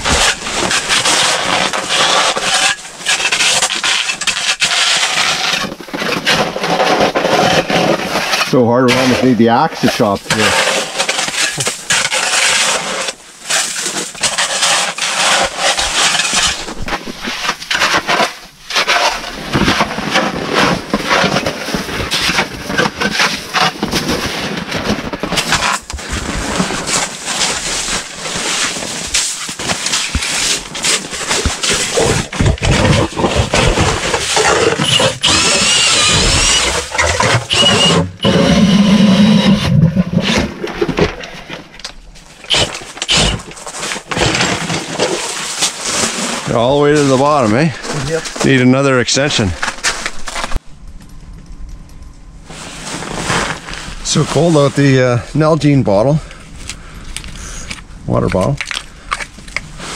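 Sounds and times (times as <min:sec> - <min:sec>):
shovel chopping and scraping snow: 0:00.0 - 0:41.3, 0:42.3 - 0:50.6, 0:52.5 - 0:55.8
low hum: 0:46.4 - 0:55.4.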